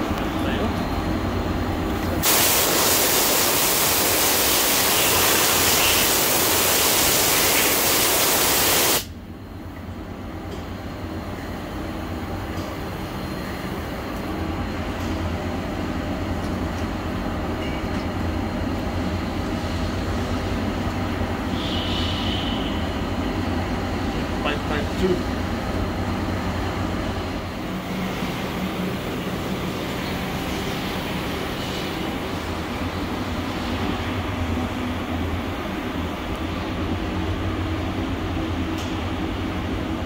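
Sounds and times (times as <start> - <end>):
air blow gun hissing: 2.2 - 9.1.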